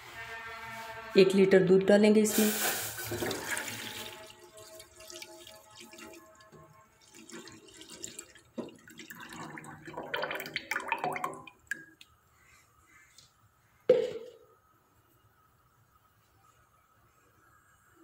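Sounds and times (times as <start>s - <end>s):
milk sloshing in a saucepan: 2.4s - 11.5s.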